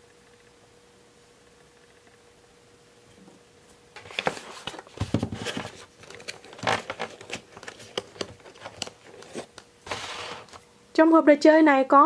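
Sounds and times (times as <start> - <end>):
plastic packaging crinkling: 4.0 - 10.6.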